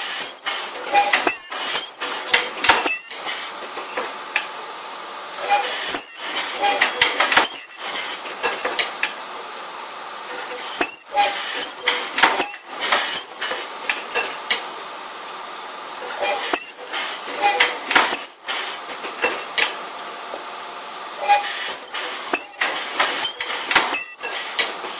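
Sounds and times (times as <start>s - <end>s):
welding machine humming: 0.0s - 24.9s
metal clanks and clinks: 0.2s - 4.2s, 5.5s - 9.2s, 10.4s - 14.5s, 16.1s - 18.4s, 21.3s - 24.9s.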